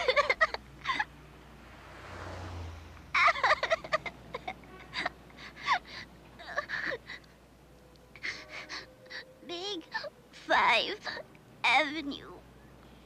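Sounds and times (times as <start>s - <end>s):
soft rising whoosh: 1.5s - 3.1s.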